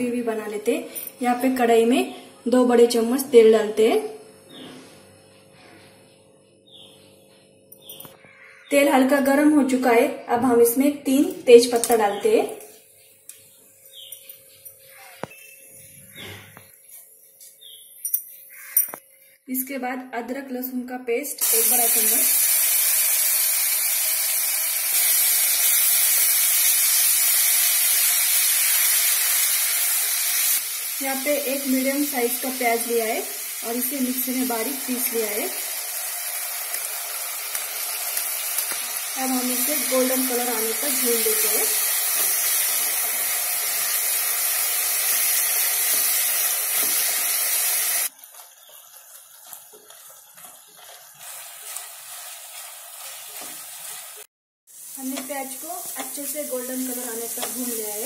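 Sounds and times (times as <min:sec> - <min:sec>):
paste sizzling in hot oil: 0:21.4 - 0:58.0
wooden spatula scraping: 0:48.2 - 0:54.0.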